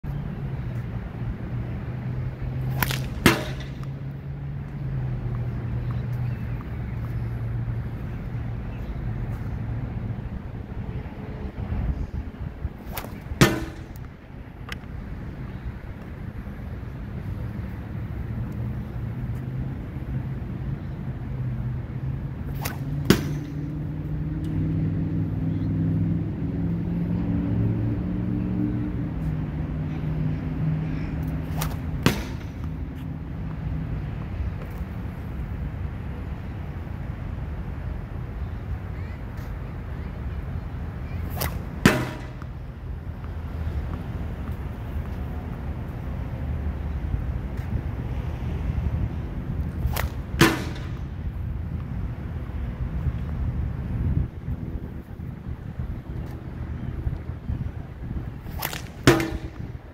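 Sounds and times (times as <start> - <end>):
tennis ball smacking target: 2.5 - 4.1, 12.8 - 15.0, 22.4 - 24.0, 31.2 - 33.1, 41.2 - 42.6, 49.6 - 51.3, 58.5 - 59.8.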